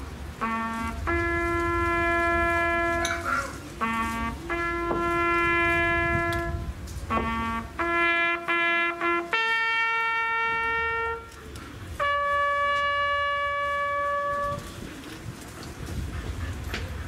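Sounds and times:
trumpet long held notes: 0:00.3 - 0:14.9.

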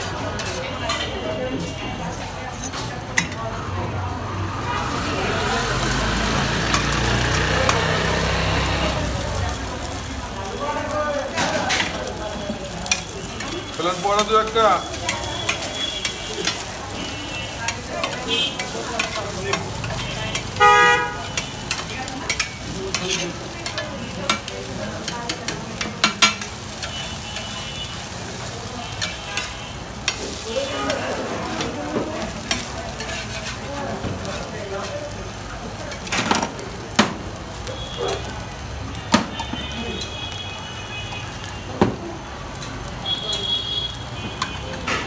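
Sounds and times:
eggs sizzling on a griddle: 0:00.0 - 0:45.0
vehicle horn honking: 0:14.8 - 0:16.4, 0:18.2 - 0:18.6, 0:20.5 - 0:21.4, 0:39.3 - 0:41.8, 0:43.0 - 0:44.8.

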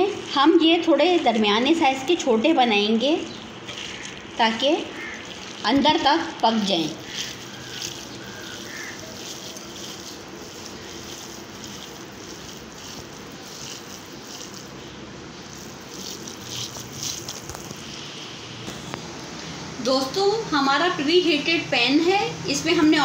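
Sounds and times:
hands squishing raw mince: 0:03.3 - 0:18.0.

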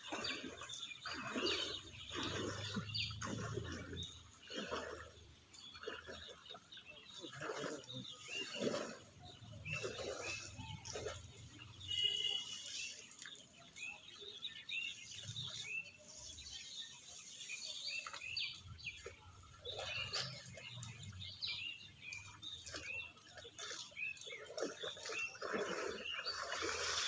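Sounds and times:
birds chirping: 0:00.0 - 0:27.0.

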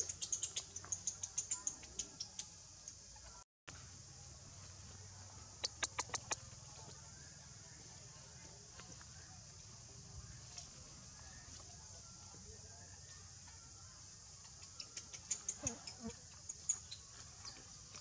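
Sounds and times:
sharp clicks: 0:05.6 - 0:06.4
faint ticks: 0:14.4 - 0:18.0.

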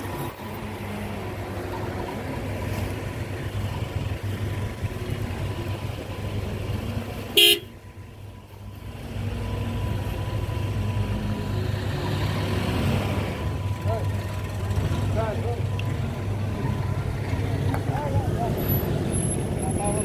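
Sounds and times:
car engines rumbling: 0:00.0 - 0:20.0
car horn toot: 0:07.3 - 0:07.8.

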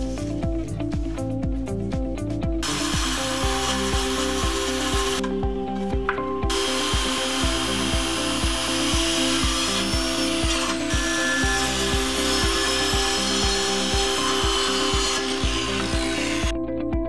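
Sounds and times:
background music with steady beat: 0:00.0 - 0:17.0
circular saw cutting wood: 0:02.6 - 0:05.4, 0:06.5 - 0:16.5.

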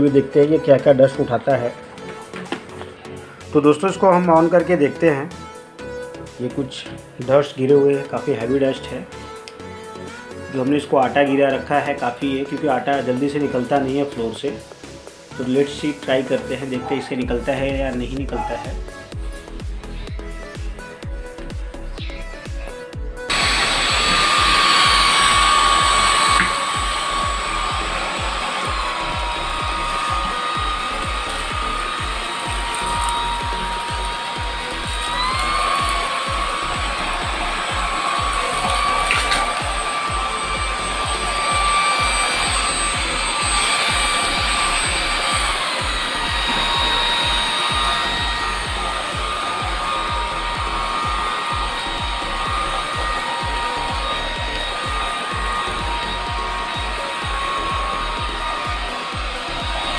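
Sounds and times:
vacuum cleaner running: 0:00.0 - 0:03.5, 0:23.3 - 0:59.9
vacuum cleaner click: 0:23.3 - 0:58.3.

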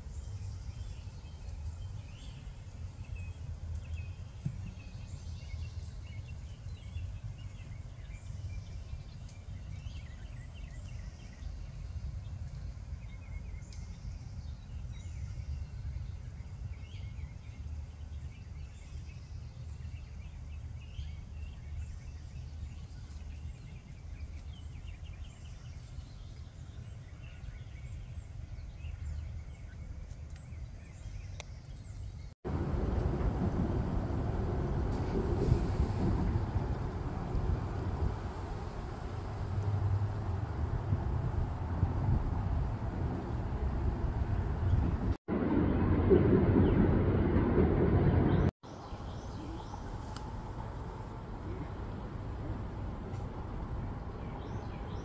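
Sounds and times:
low outdoor rumble: 0:00.0 - 0:55.0.

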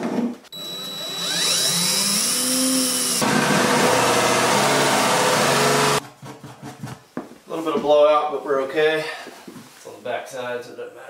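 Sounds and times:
cordless drill boring wood: 0:00.5 - 0:06.0.

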